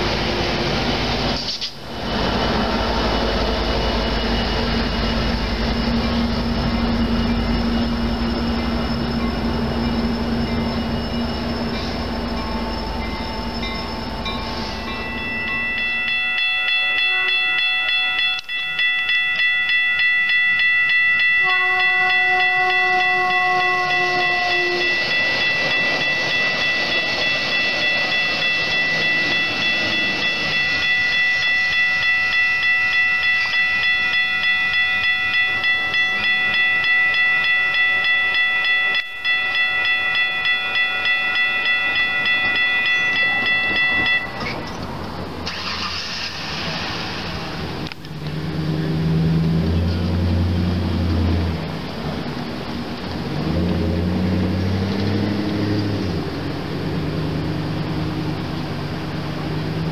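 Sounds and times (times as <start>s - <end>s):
train wheels on rail rushing: 0.0s - 59.9s
crossing bell ringing: 1.9s - 46.0s, 47.4s - 59.9s
train horn blast: 16.8s - 17.7s, 21.3s - 25.2s.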